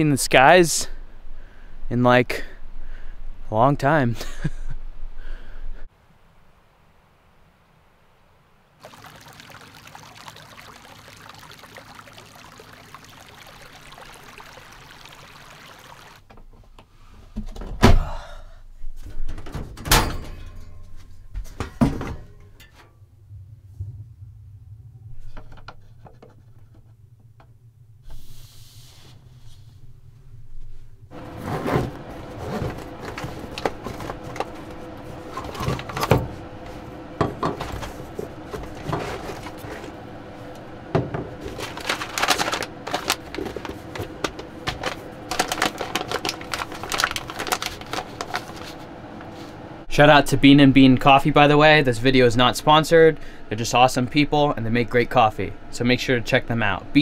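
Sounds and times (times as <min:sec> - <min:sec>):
creek trickling over stones: 0:08.8 - 0:16.2.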